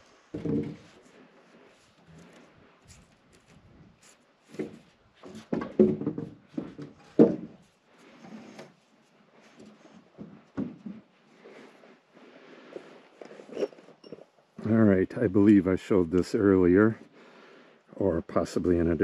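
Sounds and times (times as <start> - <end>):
wood knocking and scraping: 0.3 - 1.1, 4.4 - 7.7, 9.4 - 11.1.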